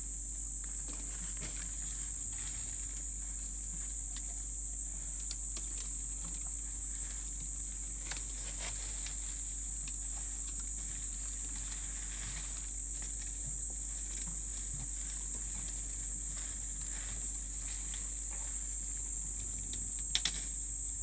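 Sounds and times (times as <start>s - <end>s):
twigs and leaves snapping: 5.1s - 18.4s, 19.3s - 20.5s.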